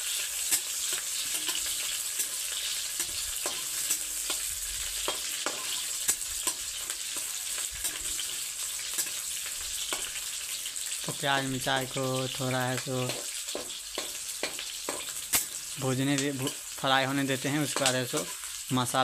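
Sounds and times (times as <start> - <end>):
onions sizzling in oil: 0.0 - 19.0
spatula scraping pan: 0.1 - 10.9, 12.6 - 15.8, 17.5 - 18.6.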